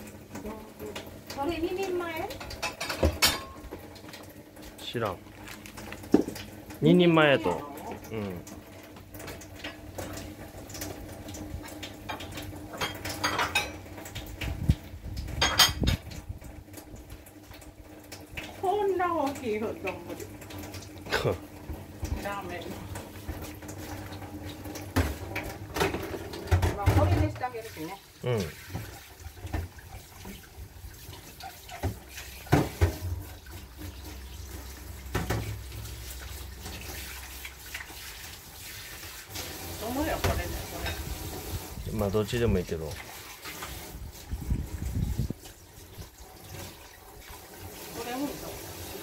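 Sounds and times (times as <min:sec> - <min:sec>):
tap water running into sink: 0:00.0 - 0:49.0
pots and utensils clattering: 0:00.3 - 0:05.0, 0:11.7 - 0:14.5, 0:15.2 - 0:16.2, 0:18.0 - 0:38.0, 0:39.4 - 0:41.4.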